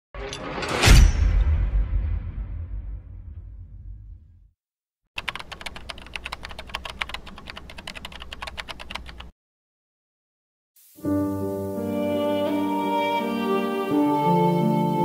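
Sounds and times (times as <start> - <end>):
keyboard typing clicks: 5.2 - 9.3
music with sustained notes: 11.0 - 15.0.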